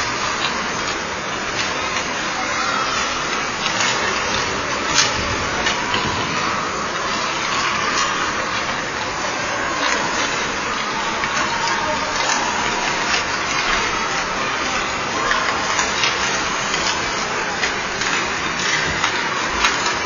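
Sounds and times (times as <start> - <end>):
skates scraping ice: 0.0 - 20.0
stick or puck clacking: 9.8 - 20.0.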